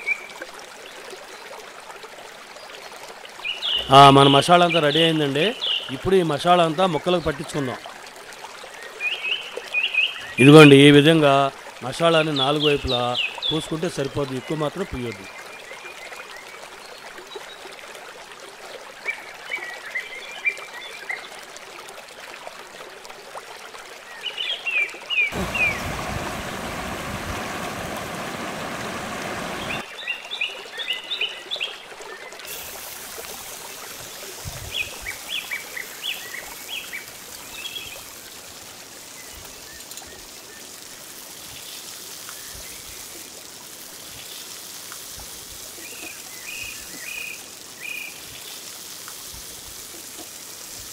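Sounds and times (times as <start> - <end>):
birds chirping: 3.4 - 7.8, 24.1 - 30.2, 33.8 - 38.2
fish sizzling in oil: 32.5 - 50.9.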